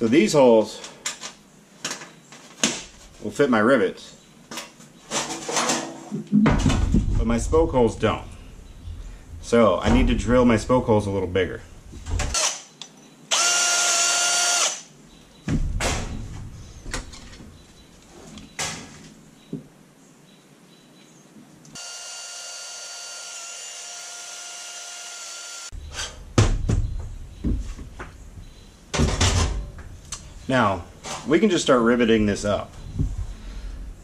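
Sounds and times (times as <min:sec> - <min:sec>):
tools and parts clattering: 0:04.6 - 0:07.0
cordless drill drilling metal: 0:13.3 - 0:14.9, 0:21.8 - 0:25.7.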